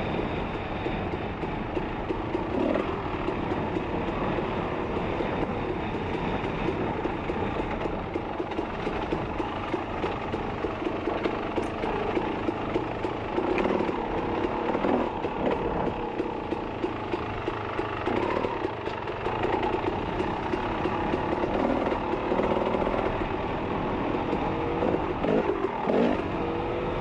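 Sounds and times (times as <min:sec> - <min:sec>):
dirt bike engine revving: 0:11.3 - 0:27.0.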